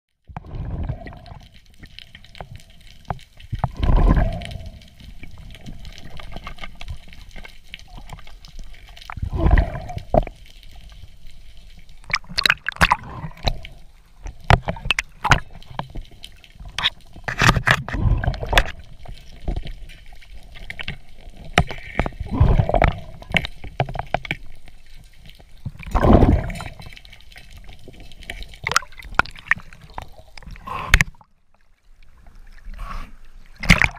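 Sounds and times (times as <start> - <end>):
muffled underwater gurgling rush: 0.4 - 1.5, 3.6 - 10.4, 12.0 - 15.9, 16.6 - 24.2, 25.6 - 26.9.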